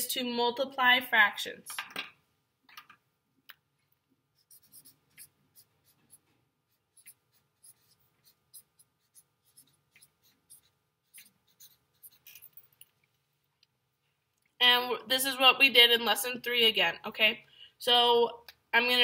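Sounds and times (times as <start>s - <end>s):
marker scratching on paper: 4.4s - 12.6s.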